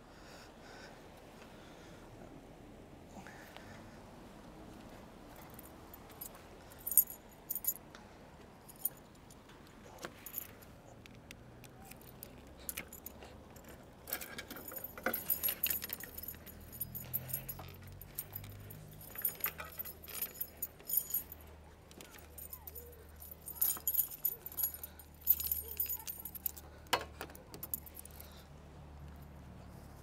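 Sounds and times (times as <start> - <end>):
metallic jingling and clicking: 5.4 - 7.8, 8.7 - 29.3.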